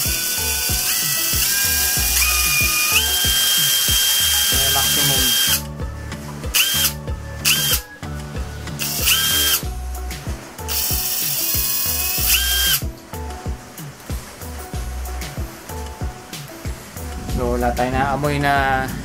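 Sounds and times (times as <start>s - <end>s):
cordless drill motor whining: 0.0s - 5.7s, 6.5s - 7.9s, 8.8s - 9.6s, 10.7s - 12.8s
background music with steady beat: 0.0s - 19.0s.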